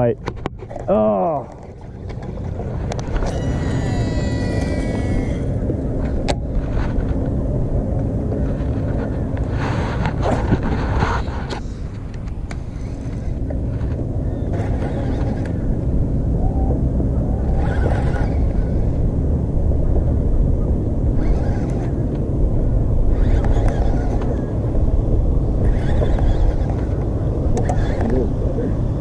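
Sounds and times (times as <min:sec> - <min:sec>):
rush of noise: 0:00.0 - 0:29.0
wind rumble on microphone: 0:00.0 - 0:29.0
fishing reel spool whining: 0:01.6 - 0:06.2, 0:11.7 - 0:16.8, 0:17.4 - 0:19.2, 0:21.1 - 0:22.3, 0:23.0 - 0:24.7, 0:25.6 - 0:28.3
brief higher whir: 0:03.0 - 0:05.6.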